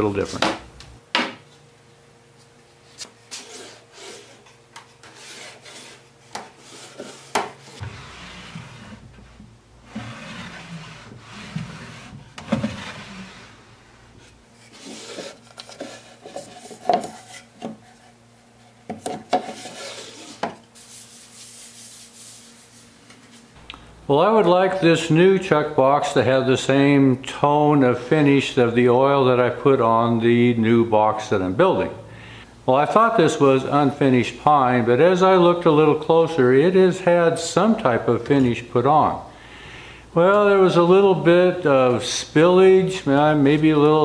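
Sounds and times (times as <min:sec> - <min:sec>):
wooden drawers sliding: 0:06.7 - 0:16.7.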